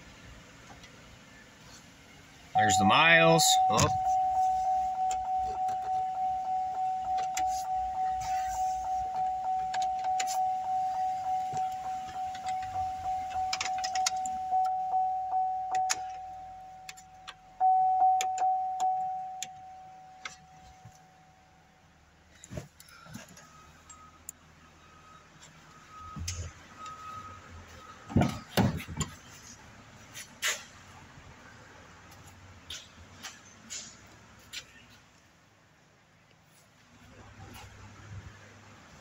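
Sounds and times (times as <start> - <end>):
dashboard warning chime: 2.6 - 22.0, 22.9 - 29.2
keys jingling: 3.7 - 20.8.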